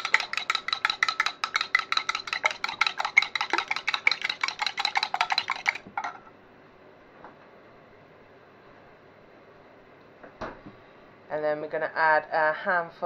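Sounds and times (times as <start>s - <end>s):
metal whisk clinking against glass: 0.0s - 5.9s.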